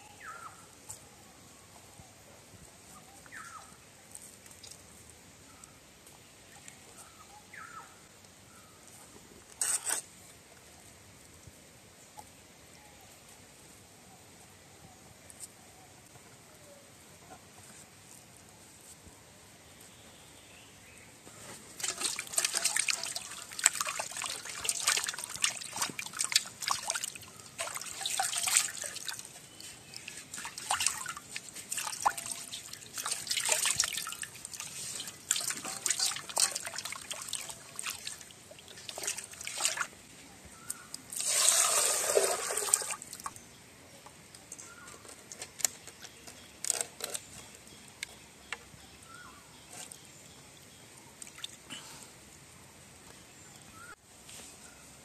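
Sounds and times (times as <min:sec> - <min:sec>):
water splashing in a metal basin: 0:21.8 - 0:29.4, 0:30.0 - 0:40.0, 0:41.1 - 0:43.3
water dripping: 0:21.8 - 0:40.0, 0:51.0 - 0:51.7.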